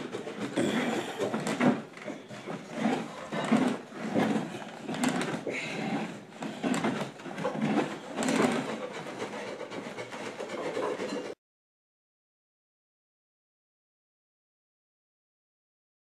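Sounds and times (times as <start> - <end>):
hand tool scraping wood: 0.0 - 11.4.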